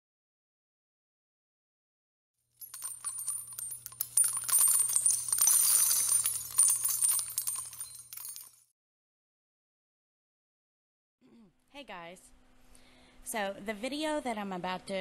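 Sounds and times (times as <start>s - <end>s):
high-pitched jingling and tinkling: 2.6s - 8.7s.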